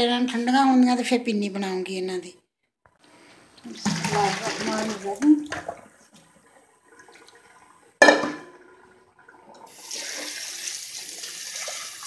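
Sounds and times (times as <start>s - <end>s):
tap water running into colander: 3.6s - 12.0s
knock on steel sink: 8.0s - 8.6s.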